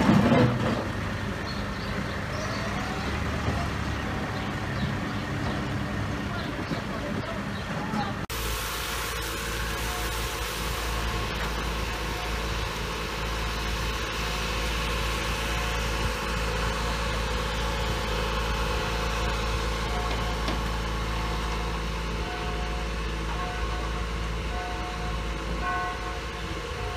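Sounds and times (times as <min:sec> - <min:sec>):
heavy equipment engine rumbling: 0:00.0 - 0:26.9.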